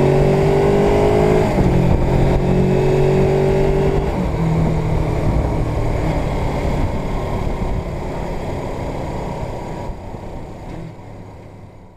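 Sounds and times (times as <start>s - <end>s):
wind rush: 0.0s - 9.2s
motorcycle engine running: 0.9s - 10.5s.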